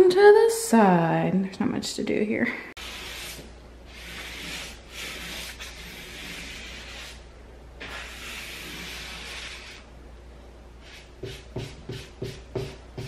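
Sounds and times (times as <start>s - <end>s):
paintbrush bristles rubbing on wall: 2.8s - 7.2s, 7.8s - 9.9s, 10.8s - 13.0s.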